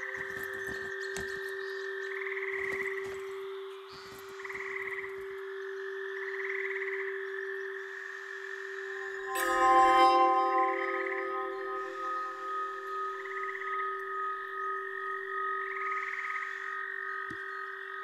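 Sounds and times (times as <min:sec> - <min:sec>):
low drone: 0:08.0 - 0:16.7
bright ringing chime tones: 0:09.0 - 0:14.7.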